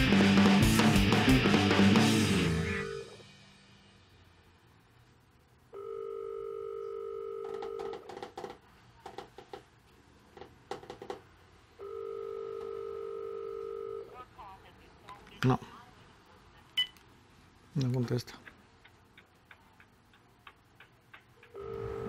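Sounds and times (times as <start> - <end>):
phone ringback tone: 2.6 - 3.2, 5.7 - 8.1, 11.8 - 14.1, 21.5 - 22.0.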